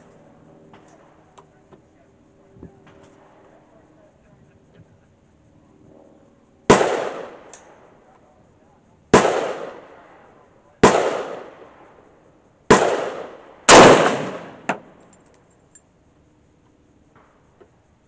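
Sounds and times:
rifle shots: 0:06.7 - 0:07.8, 0:09.1 - 0:10.1, 0:10.8 - 0:11.9, 0:12.7 - 0:14.9
sharp crack with reverberating tail: 0:06.7 - 0:07.8, 0:09.2 - 0:10.1, 0:12.7 - 0:14.9.

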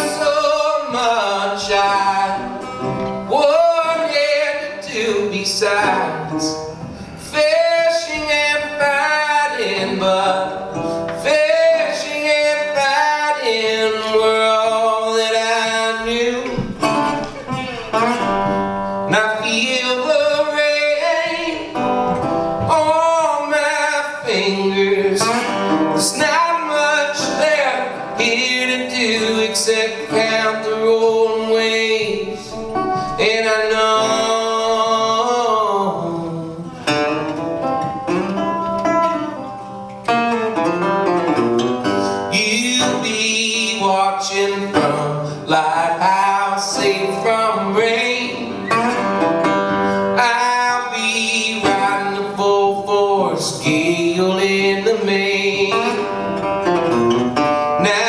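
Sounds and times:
man singing: 0:00.0 - 0:37.4, 0:42.0 - 0:56.6, 0:57.6 - 0:58.0
resonator guitar plucked: 0:00.0 - 0:45.2.

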